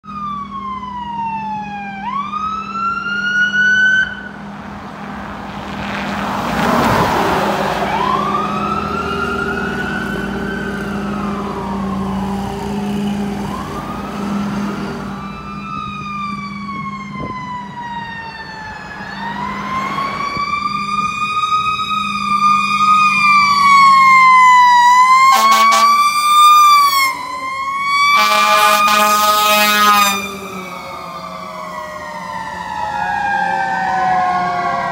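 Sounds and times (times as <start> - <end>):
emergency sirens wailing: 0.0 - 34.9
engine drone: 0.1 - 34.9
truck horn blasts: 25.2 - 27.1, 28.1 - 31.1.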